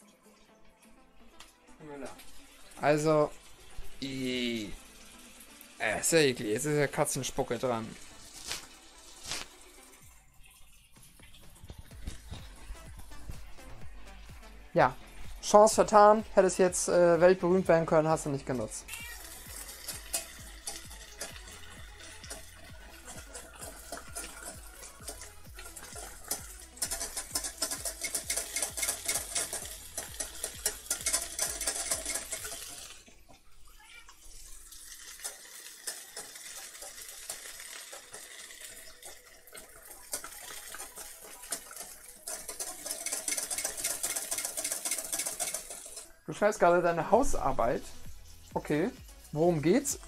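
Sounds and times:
sausages sizzling: 0.0 - 50.0
whisk scraping metal saucepan: 19.2 - 33.1, 35.0 - 46.2.

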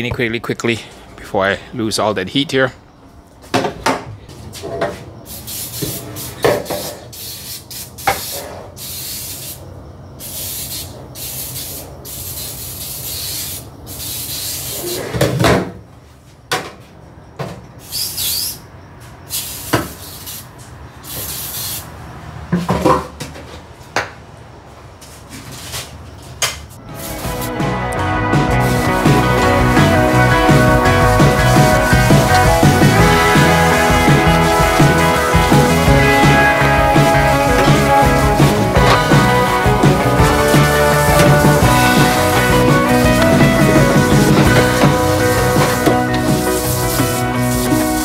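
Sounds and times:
aerosol can spraying: 5.3 - 9.6, 10.2 - 15.0, 19.3 - 20.5, 21.1 - 21.9, 27.0 - 27.6, 28.5 - 30.0, 31.3 - 48.0.

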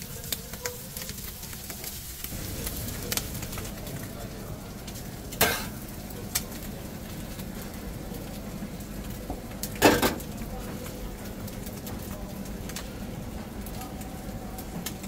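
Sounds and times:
steady background hum: 0.0 - 15.0
spatula knocking on griddle: 5.4 - 5.7.

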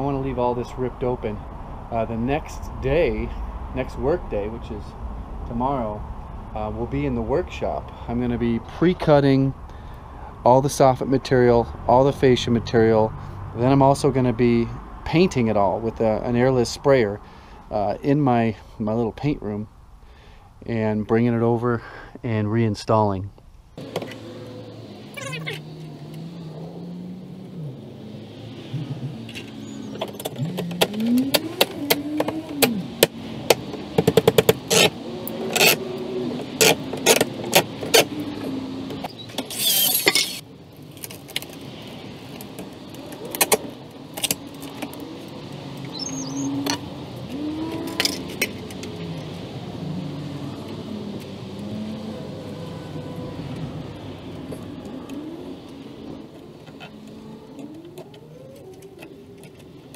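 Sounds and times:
rushing scrape: 39.4 - 40.4.

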